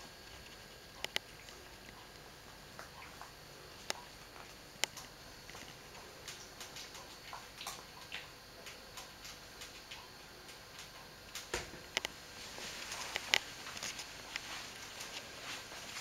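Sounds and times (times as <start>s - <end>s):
small clicks and taps: 0.3s - 2.1s, 2.8s - 12.1s, 13.0s - 14.5s.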